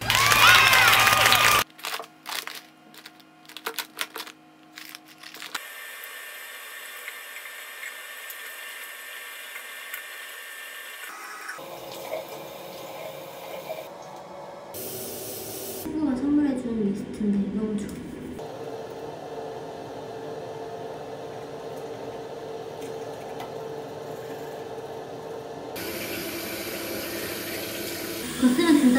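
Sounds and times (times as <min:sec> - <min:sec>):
rustling in plastic box: 0:01.8 - 0:05.6.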